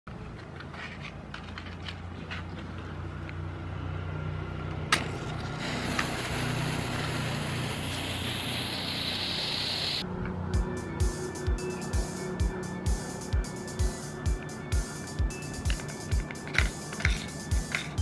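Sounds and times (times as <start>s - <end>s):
fuse fizzing: 5.3s - 10.0s.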